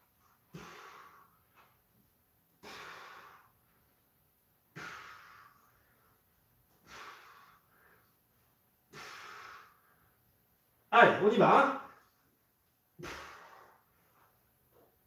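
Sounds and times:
man exhaling sharply: 0.5s - 1.2s, 13.0s - 13.8s.

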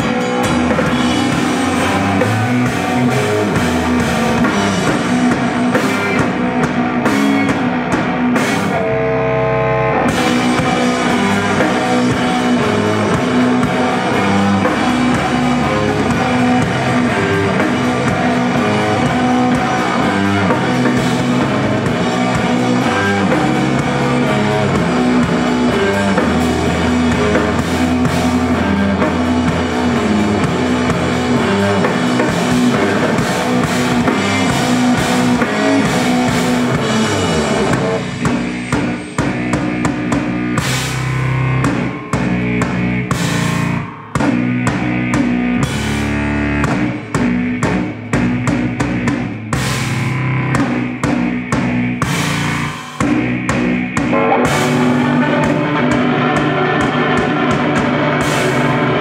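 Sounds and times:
drum kit: 0.0s - 59.0s
electric guitar: 0.0s - 59.0s
live rock band playing: 0.0s - 59.0s
saxophone: 54.0s - 59.0s.

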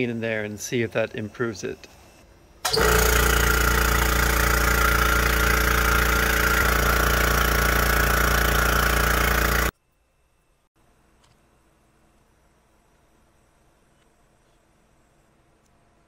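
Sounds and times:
air compressor motor hum: 2.6s - 9.7s.

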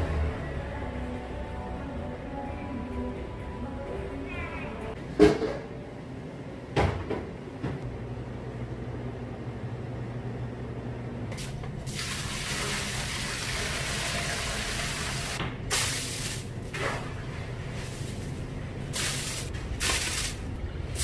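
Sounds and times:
steady machine hum: 1.8s - 12.1s.

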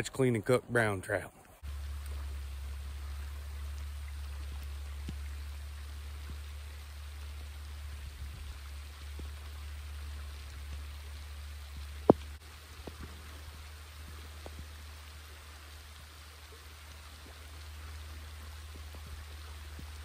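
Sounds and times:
low rumble: 1.6s - 14.8s
rain: 1.6s - 20.0s
river water rushing: 1.6s - 20.0s
small ticks: 1.7s - 7.4s.

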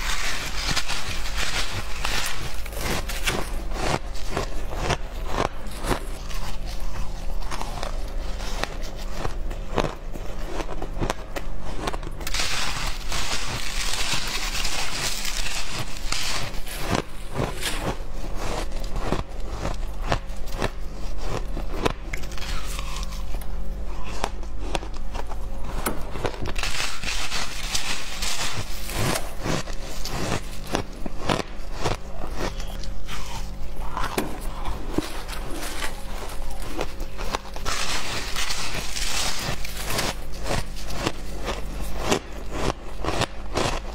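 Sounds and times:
ice scraping and crumbling: 0.0s - 23.4s, 24.0s - 43.9s
crunching of chewed ice: 0.0s - 43.9s.

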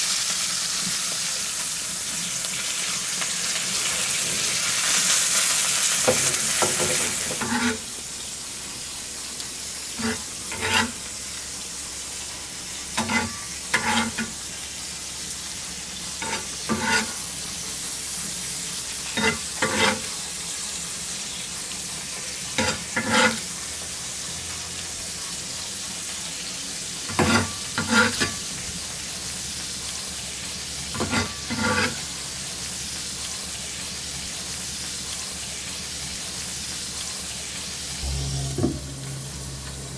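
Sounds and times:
meat sizzling on a grill plate: 0.0s - 38.0s
knife blade scraping plate: 7.4s - 7.8s, 10.0s - 11.0s, 13.0s - 14.3s, 16.2s - 17.2s, 19.2s - 20.1s, 22.6s - 23.4s, 27.1s - 28.3s, 31.0s - 32.0s.

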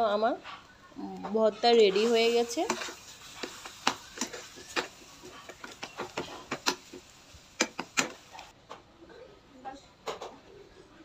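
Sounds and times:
spatula scraping a pan: 1.6s - 8.5s.

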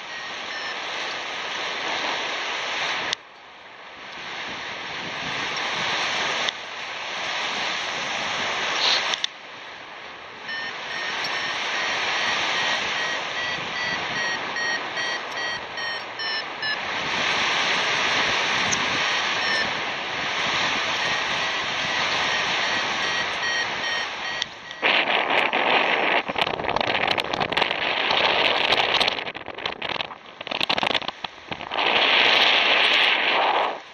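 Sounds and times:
variometer beeping: 0.0s - 1.2s, 10.4s - 17.2s, 18.6s - 25.1s
wind rushing over microphone: 3.9s - 9.7s, 10.3s - 33.9s.

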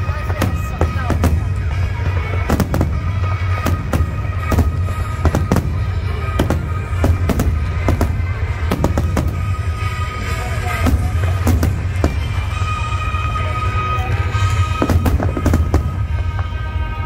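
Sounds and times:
fireworks bursting: 0.0s - 17.0s.

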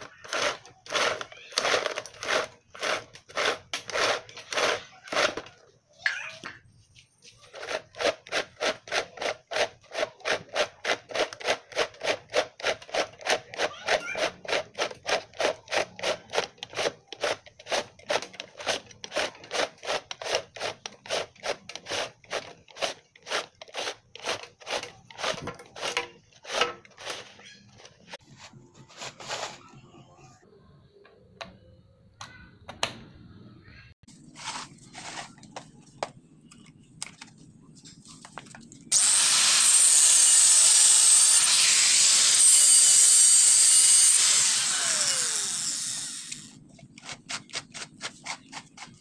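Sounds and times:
plastic reel rubbing scrape: 0.0s - 5.6s, 7.4s - 29.9s, 34.2s - 35.6s.

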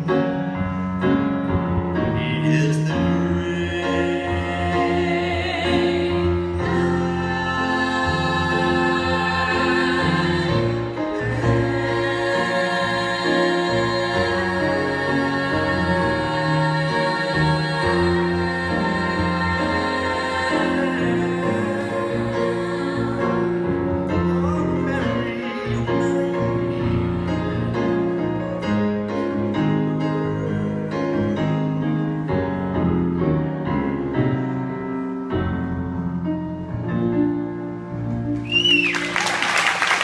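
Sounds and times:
singers in harmony with accompaniment: 0.0s - 40.0s
whistle rising and falling: 38.4s - 39.3s
applause: 38.5s - 40.0s.

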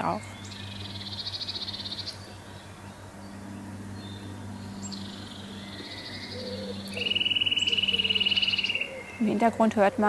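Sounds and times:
steady low hum: 0.0s - 10.0s
bird scolding trill: 4.2s - 10.0s.

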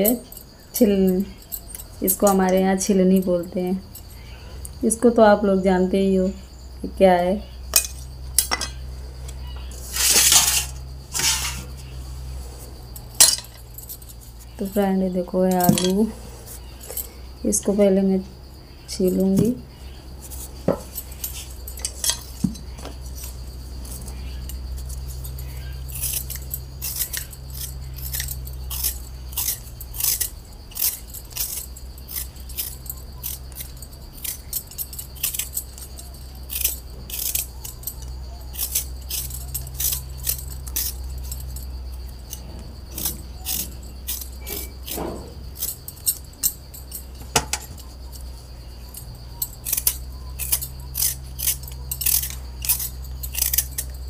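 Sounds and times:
bangles clinking: 0.0s - 5.8s, 7.4s - 54.0s
peeler scraping potato skin: 9.4s - 12.0s, 19.0s - 46.6s, 48.9s - 54.0s.

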